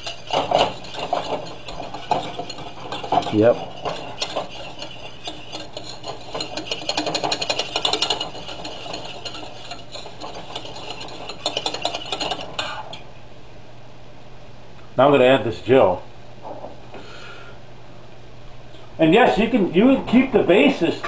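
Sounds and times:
whisk scraping a metal saucepan: 0.0s - 13.0s.

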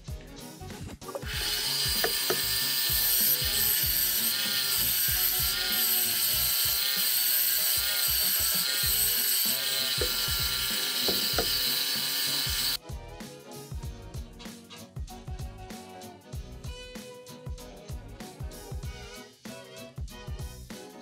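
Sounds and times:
wood lathe turning tool cutting: 1.2s - 12.8s.

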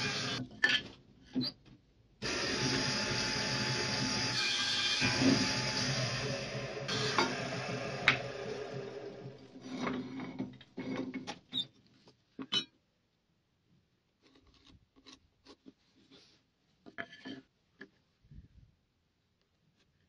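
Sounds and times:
table saw humming: 0.0s - 0.4s, 2.2s - 10.6s.

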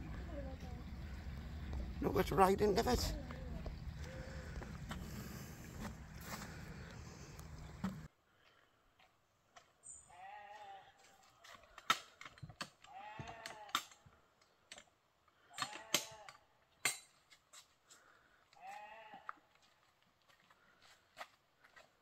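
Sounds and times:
sheep bleating: 10.1s - 11.0s, 12.9s - 13.8s, 18.6s - 19.4s.

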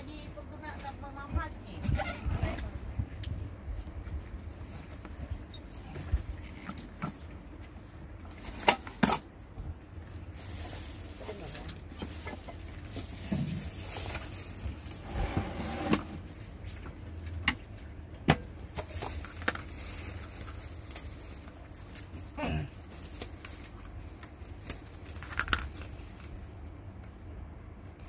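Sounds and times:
plastic film rustling and crinkling: 9.8s - 16.9s, 18.5s - 28.0s.

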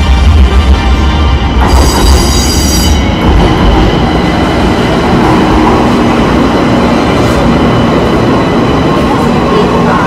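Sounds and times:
train wheels rumbling on rails: 0.0s - 10.0s.

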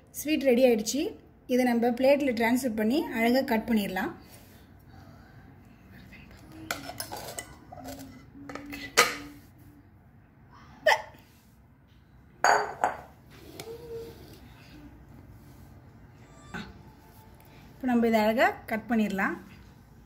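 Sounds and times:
glass and ceramic clinking: 12.4s - 13.1s.

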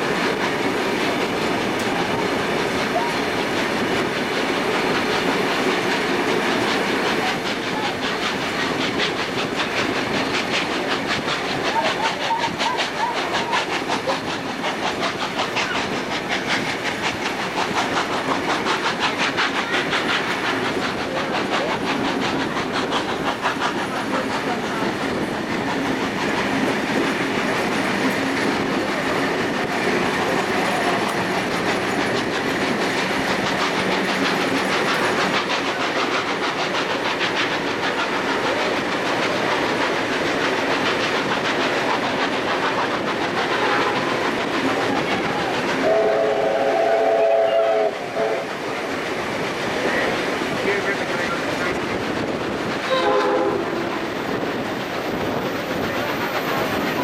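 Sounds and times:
train wheels on rails: 0.0s - 57.0s
steam whistle: 43.6s - 44.1s, 45.8s - 48.5s, 52.9s - 54.0s.

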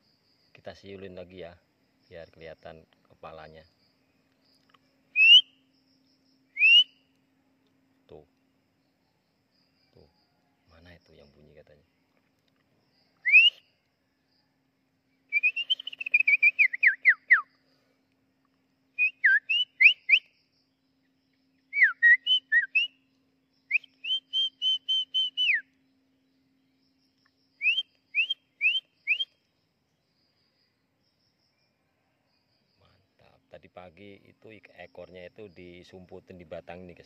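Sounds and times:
person whistling bird-like phrases: 5.2s - 5.4s, 6.6s - 6.9s, 13.2s - 13.6s, 15.4s - 17.4s, 21.8s - 22.9s, 27.6s - 29.3s.

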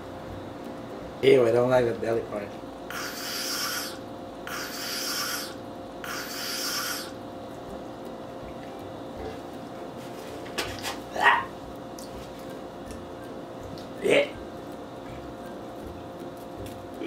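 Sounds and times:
person hissing through teeth: 2.9s - 7.2s.

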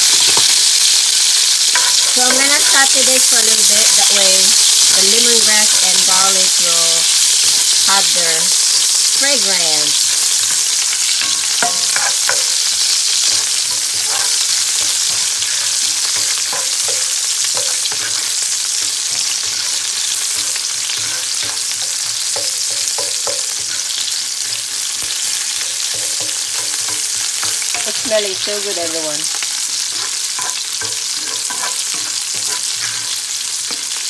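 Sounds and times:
food sizzling in hot oil: 0.0s - 34.0s
metal tongs clicking and scraping: 11.0s - 18.3s, 29.5s - 34.0s.

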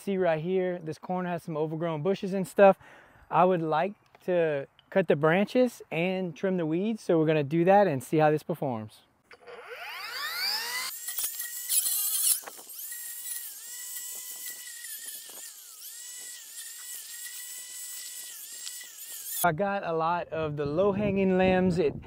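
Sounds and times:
blade cutting branches: 9.3s - 19.5s
weed trimmer blade whining: 9.3s - 19.5s.

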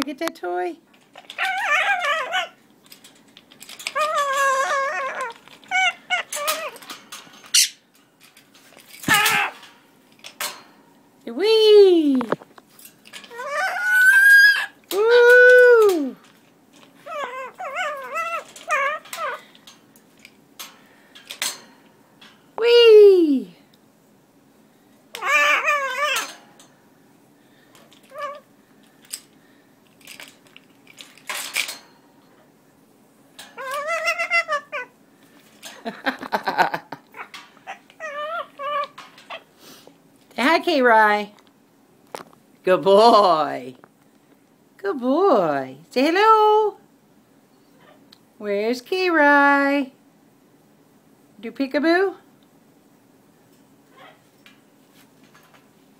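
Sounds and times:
parrot calls and squawks: 1.2s - 2.6s, 3.8s - 7.9s, 9.0s - 9.6s, 13.2s - 14.8s, 17.0s - 19.5s, 25.2s - 26.5s, 28.0s - 28.5s, 33.4s - 35.0s, 37.1s - 39.5s, 53.9s - 54.3s.

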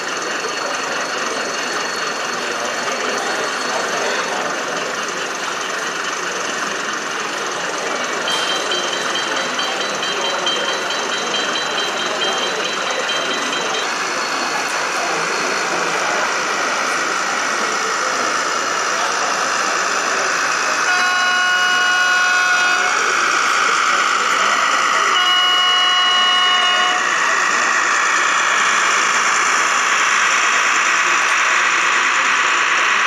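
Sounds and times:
crowd chatter: 0.0s - 33.0s
model train horn blasts: 20.8s - 23.0s, 25.1s - 27.2s.

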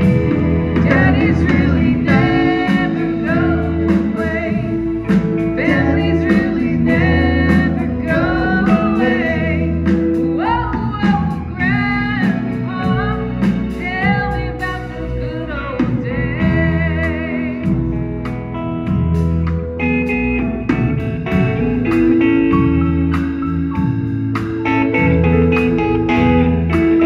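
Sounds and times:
bass guitar: 0.0s - 27.0s
drums: 0.0s - 27.0s
electric guitar: 0.0s - 27.0s
keyboard: 0.0s - 27.0s
woman singing: 0.6s - 18.0s.

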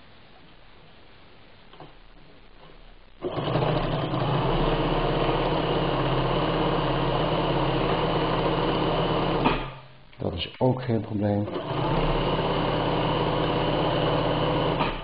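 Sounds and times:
sewing machine stitching leather: 3.2s - 9.9s, 11.5s - 15.0s.

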